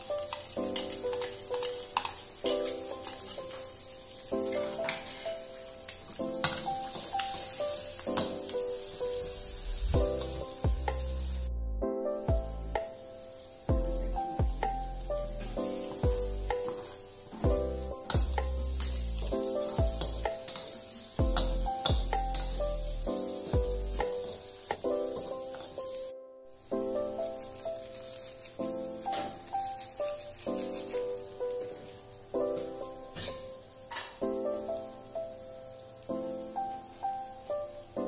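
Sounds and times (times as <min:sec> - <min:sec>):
food sizzling in a wok: 0:00.0 - 0:11.5, 0:12.4 - 0:38.0
background music with bass: 0:09.7 - 0:12.9, 0:13.7 - 0:16.6, 0:17.5 - 0:20.4, 0:21.2 - 0:24.1.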